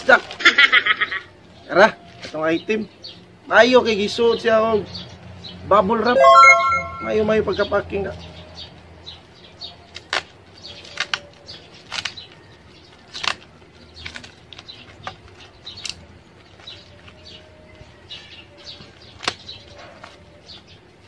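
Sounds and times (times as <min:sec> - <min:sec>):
plastic crinkling and rustling: 0:00.0 - 0:00.6.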